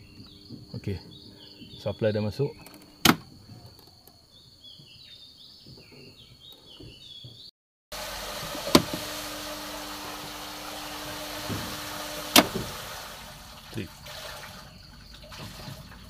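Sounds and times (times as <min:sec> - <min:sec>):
high insect tone: 0:00.0 - 0:06.8
faint bird chirps: 0:00.0 - 0:07.5
low hum: 0:08.0 - 0:13.7
steady hiss: 0:08.0 - 0:14.1.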